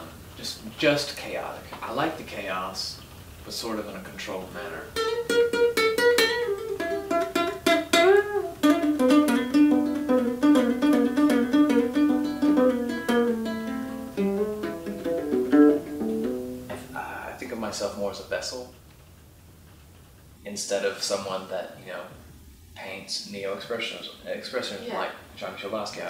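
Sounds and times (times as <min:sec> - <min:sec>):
fingerpicked acoustic guitar: 0:04.8 - 0:17.2.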